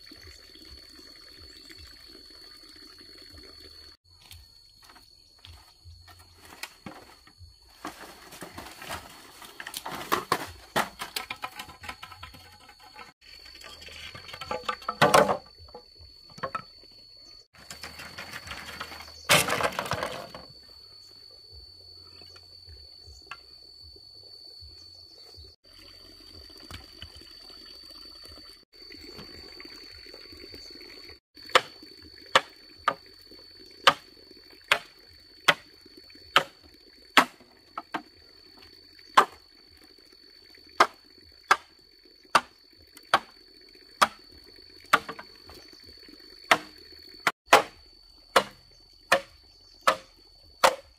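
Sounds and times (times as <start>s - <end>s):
machete chopping bamboo: 34.7s - 34.9s, 37.2s - 38.0s, 44.9s - 45.2s, 46.5s - 46.8s, 47.5s - 50.9s.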